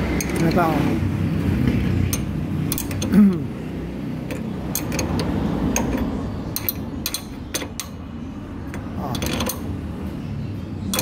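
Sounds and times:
metallic spanner clicks: 0:02.1 - 0:03.2, 0:04.3 - 0:08.0.

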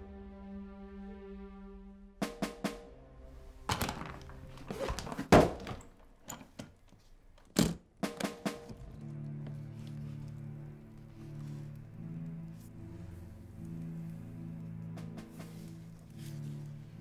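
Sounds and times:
low music score: 0:00.0 - 0:05.0, 0:08.0 - 0:17.0
suitcase thuds and knocks: 0:03.7 - 0:06.8
latch clicks: 0:05.5 - 0:09.2.

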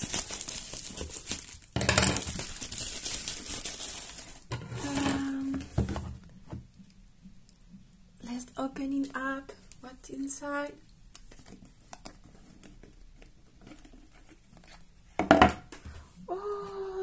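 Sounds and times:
bubble wrap crinkling: 0:00.0 - 0:05.7, 0:11.1 - 0:15.0.

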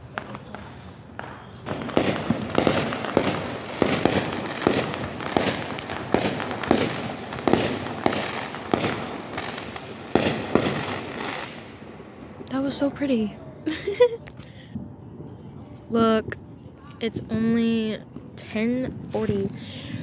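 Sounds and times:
fireworks bangs: 0:00.0 - 0:14.1.

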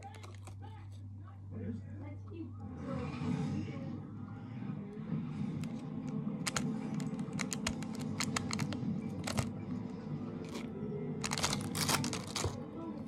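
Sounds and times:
slime clicking and crackling: 0:11.2 - 0:12.6.

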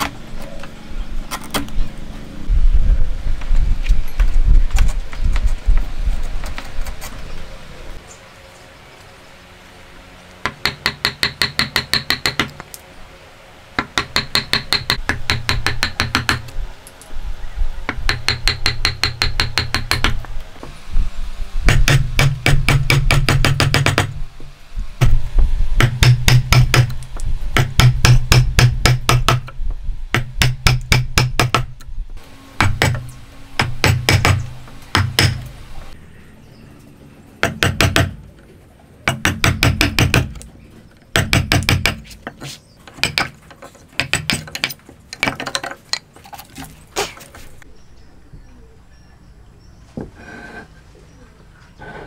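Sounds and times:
chisel striking hardwood: 0:10.4 - 0:12.5, 0:13.8 - 0:16.5, 0:17.9 - 0:20.2, 0:33.6 - 0:35.4, 0:37.4 - 0:38.2, 0:39.1 - 0:40.4, 0:41.1 - 0:45.7.

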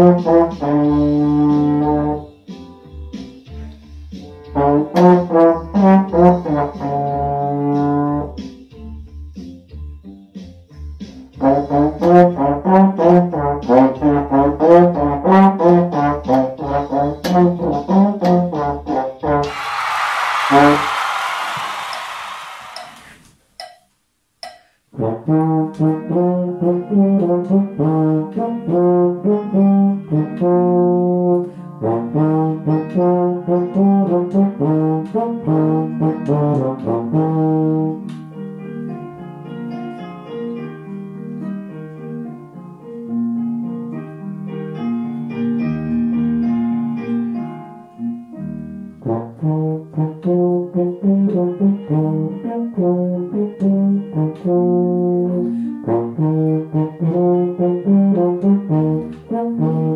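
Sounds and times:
tenor horn melody: 0:00.0 - 0:02.3, 0:04.5 - 0:07.6.

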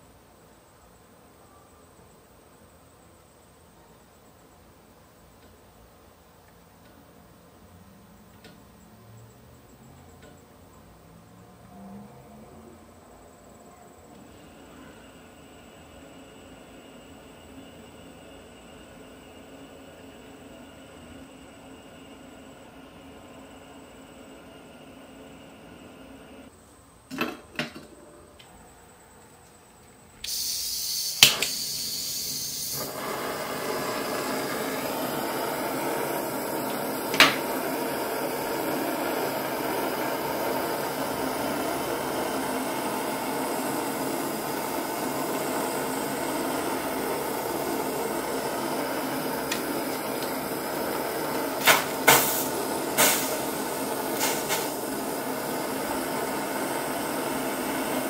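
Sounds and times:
butane torch flame hissing: 0:14.2 - 0:26.5, 0:30.2 - 0:58.0
torch lighting click: 0:30.2 - 0:41.8, 0:43.9 - 0:56.1.

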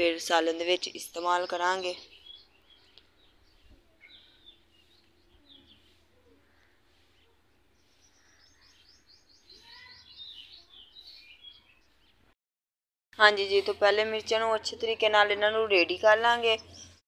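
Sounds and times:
bird chirps: 0:01.2 - 0:12.3.

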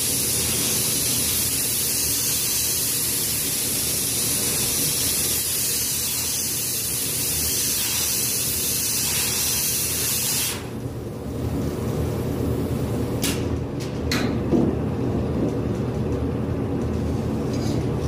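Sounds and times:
spray gun hissing: 0:00.0 - 0:10.8.

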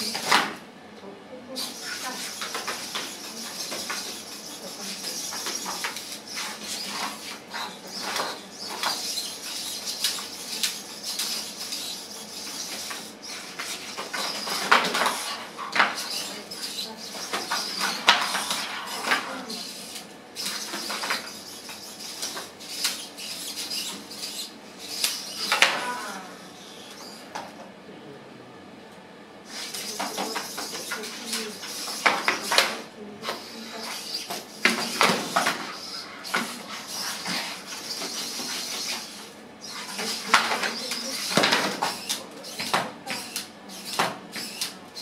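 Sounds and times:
servo motors whirring: 0:29.5 - 0:45.0.

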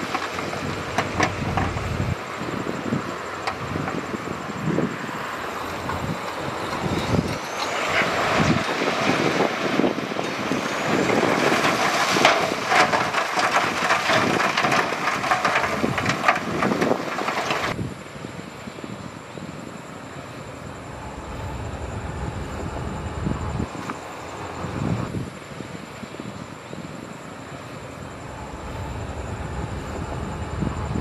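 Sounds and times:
heavy machinery engine: 0:00.0 - 0:31.0
clatter of knocks on rock: 0:11.6 - 0:17.8.

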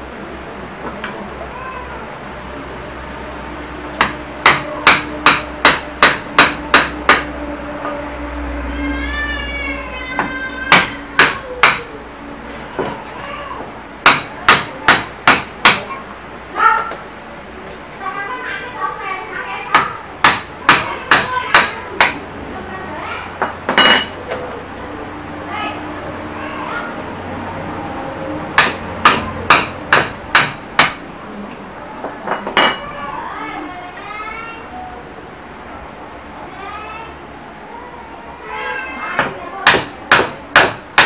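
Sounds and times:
hammer on metal punch: 0:04.0 - 0:07.3, 0:10.7 - 0:11.9, 0:14.0 - 0:15.8, 0:19.7 - 0:22.2, 0:28.6 - 0:31.0, 0:39.2 - 0:41.0.

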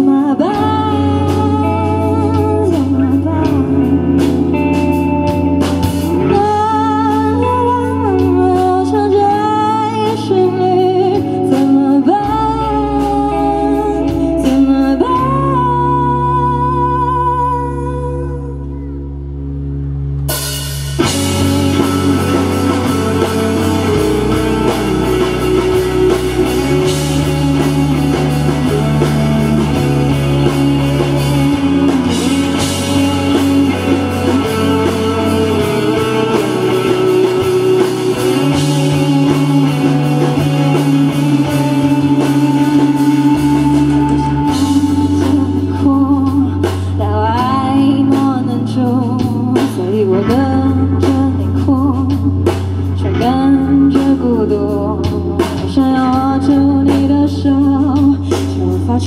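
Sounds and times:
electric bass line: 0:00.0 - 0:59.0
electric guitar: 0:00.0 - 0:59.0.

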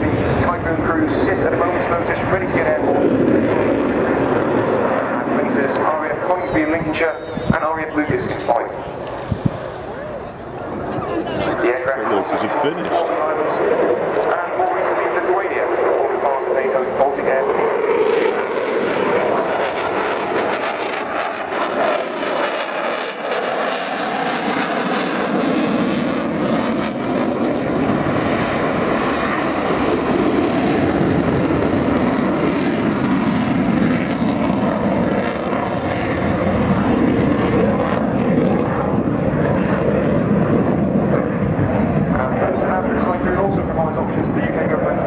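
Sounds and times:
jet engines roaring: 0:00.0 - 0:45.0
faint whine: 0:03.9 - 0:15.1.

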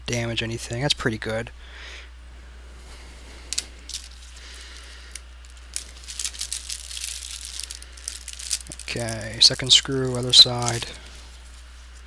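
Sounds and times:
steady low hum: 0:00.0 - 0:12.0
plastic bag crinkling: 0:03.4 - 0:12.0.

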